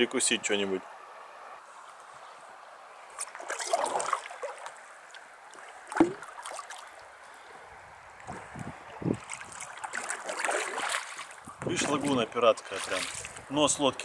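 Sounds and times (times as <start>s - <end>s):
paddle splashing in water: 3.1s - 7.0s, 8.2s - 13.5s.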